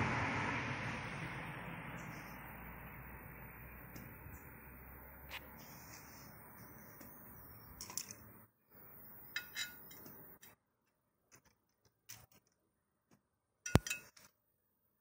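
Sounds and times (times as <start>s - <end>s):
metallic clicks and clinks: 9.3s - 10.6s, 13.6s - 14.3s.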